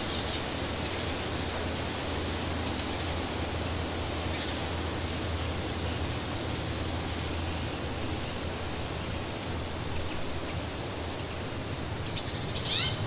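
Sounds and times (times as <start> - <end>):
steady rushing forest ambience: 0.0 - 13.0
faint high bird chirps: 12.2 - 13.0.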